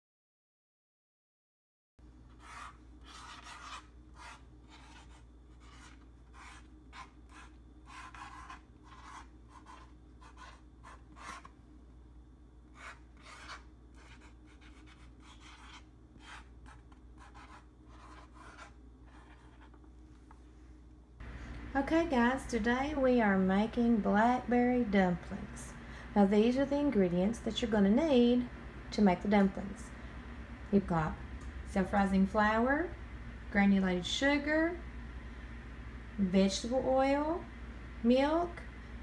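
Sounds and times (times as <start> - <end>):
faint low hum: 2.0 - 39.0
marker pen scratching on board: 2.3 - 11.5, 12.7 - 19.8.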